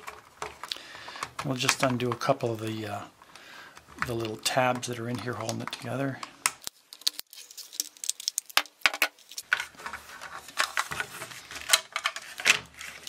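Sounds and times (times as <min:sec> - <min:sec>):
plastic clicks and snaps: 0:00.0 - 0:02.3.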